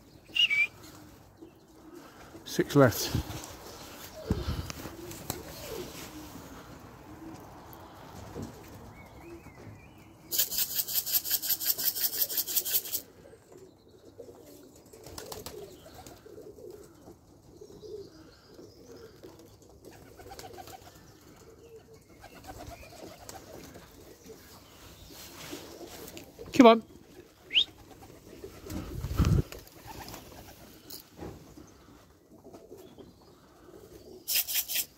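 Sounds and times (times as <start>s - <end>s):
pigeons cooing: 0.0s - 34.9s.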